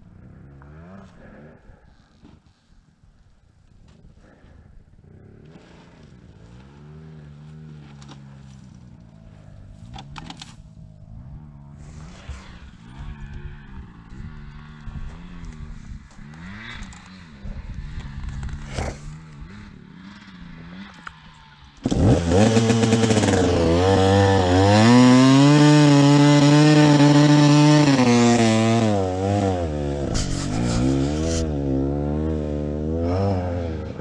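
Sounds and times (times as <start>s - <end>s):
dirt bike engine revving: 11.1s - 34.0s.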